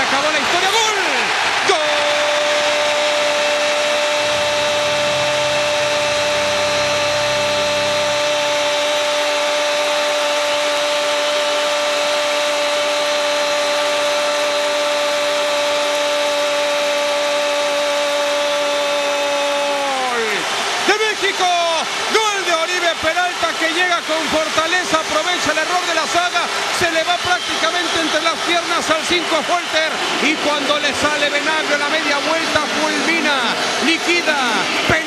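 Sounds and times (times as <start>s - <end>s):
commentator shouting: 0.0s - 3.4s, 19.0s - 35.0s
crowd noise: 0.0s - 35.0s.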